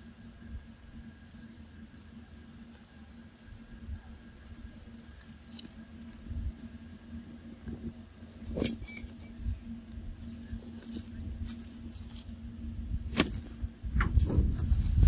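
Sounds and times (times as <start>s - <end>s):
faint steady hum: 0.0s - 15.0s
dry leaves and twigs rustling: 4.3s - 15.0s
microphone handling rumble: 7.6s - 15.0s.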